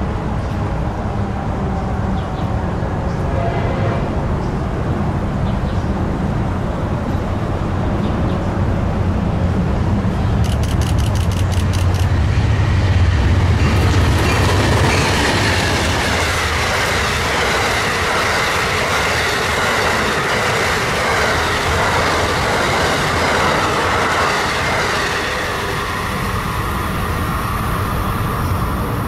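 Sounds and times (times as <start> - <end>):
train wheels on rails: 6.9 - 29.0.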